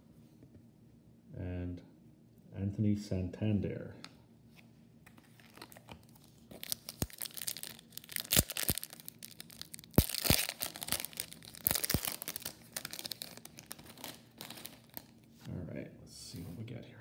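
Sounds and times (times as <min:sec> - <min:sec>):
foil wrapper tearing and crinkling: 0:05.4 - 0:15.2.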